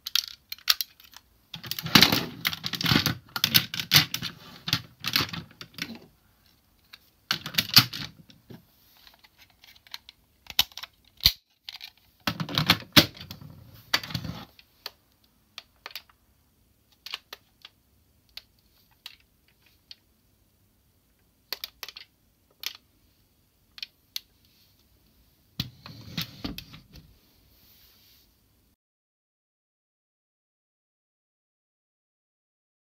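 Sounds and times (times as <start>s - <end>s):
plastic toy parts clicking: 0.0s - 6.0s, 6.8s - 8.3s, 9.0s - 13.2s, 15.6s - 16.2s, 16.9s - 20.1s, 21.5s - 22.8s.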